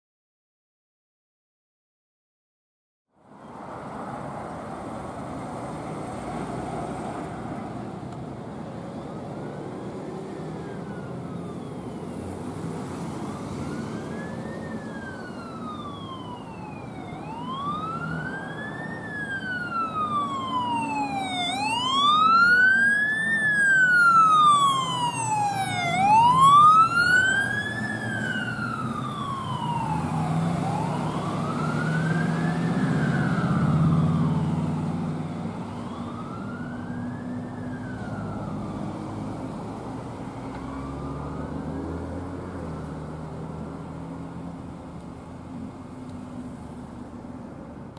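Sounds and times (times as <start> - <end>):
truck engine rumble: 3.4 - 47.9
fire engine siren wailing: 8.8 - 44.9.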